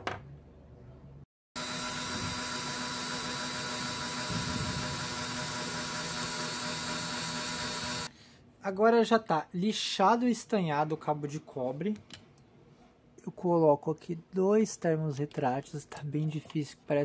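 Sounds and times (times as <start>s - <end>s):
rotary tool grinding: 1.6s - 8.1s.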